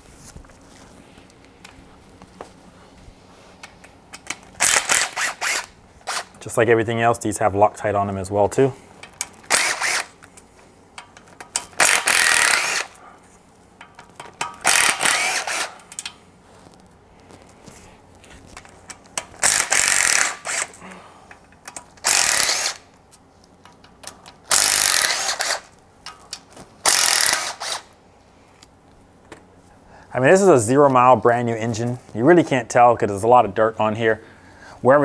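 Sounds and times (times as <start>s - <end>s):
impact gun running: 9.4s - 10.2s, 11.7s - 13.0s, 14.6s - 15.9s.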